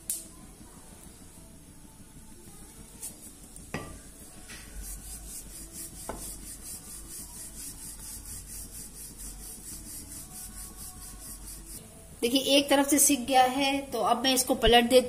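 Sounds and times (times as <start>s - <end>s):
rolling pin swishing on dough: 4.4s - 11.8s.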